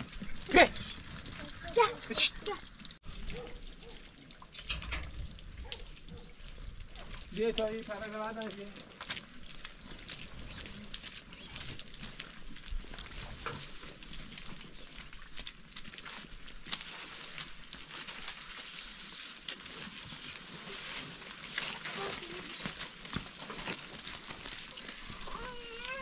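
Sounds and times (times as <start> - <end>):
rain falling: 0.0 - 26.0.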